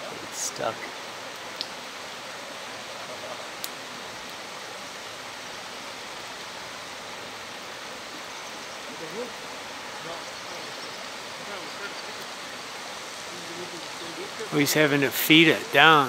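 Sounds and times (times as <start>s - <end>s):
waterfall rushing: 0.0s - 16.0s
faint ticks: 1.6s - 1.8s, 8.4s - 8.6s.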